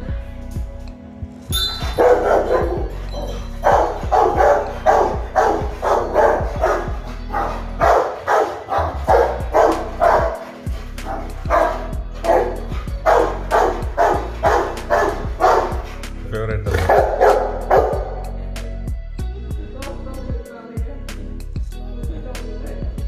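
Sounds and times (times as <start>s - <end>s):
dog barking: 1.8s - 16.0s, 16.7s - 18.3s.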